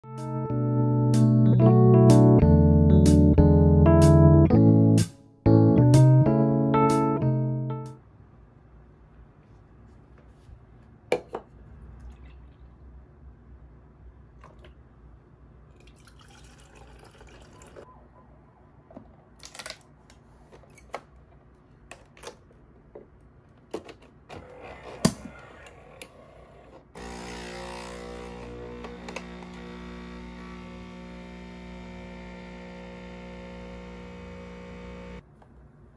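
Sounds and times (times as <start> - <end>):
coffee machine pump humming: 27.0 - 35.2.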